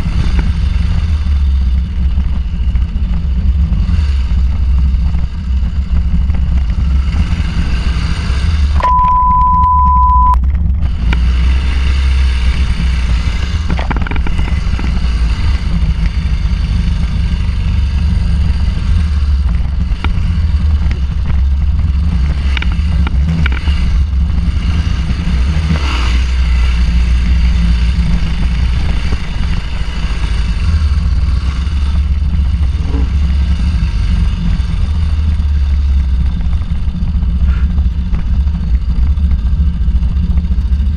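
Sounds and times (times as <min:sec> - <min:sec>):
motorcycle engine running: 0:00.0 - 0:40.9
steady beep: 0:08.8 - 0:10.4.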